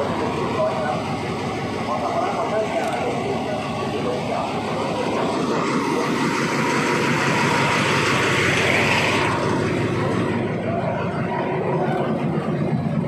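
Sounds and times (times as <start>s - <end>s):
diesel locomotive idling: 0.0s - 13.0s.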